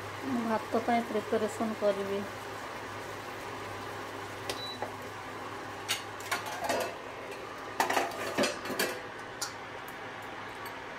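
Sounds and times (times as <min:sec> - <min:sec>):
metal lid and utensils clinking: 0:05.9 - 0:07.0, 0:07.8 - 0:09.6.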